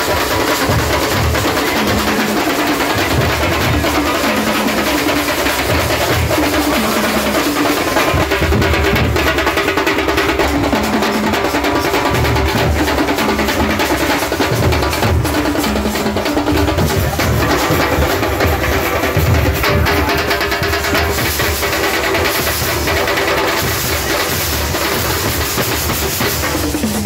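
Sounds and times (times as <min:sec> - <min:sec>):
large drums beaten with sticks: 0:00.0 - 0:27.0.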